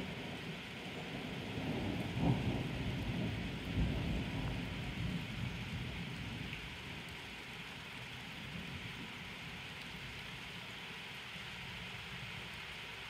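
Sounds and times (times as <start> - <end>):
rain hissing: 0.0 - 13.0
thunder rumbling: 1.5 - 6.5.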